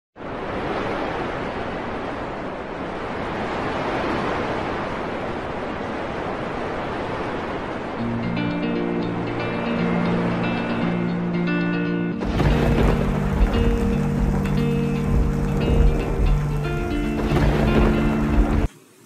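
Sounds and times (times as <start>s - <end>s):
steady rushing noise: 0.2s - 19.0s
music with sustained tones: 8.0s - 18.8s.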